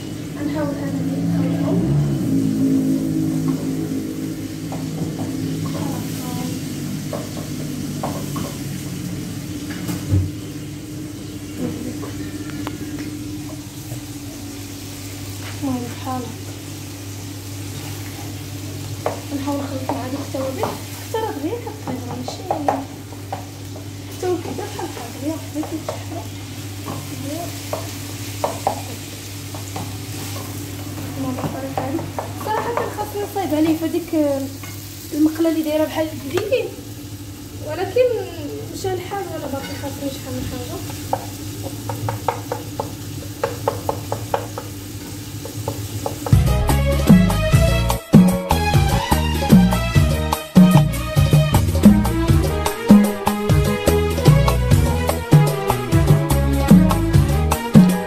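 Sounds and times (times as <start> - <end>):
steady low hum: 0.0 - 17.6
meat sizzling in a pan: 0.0 - 58.0.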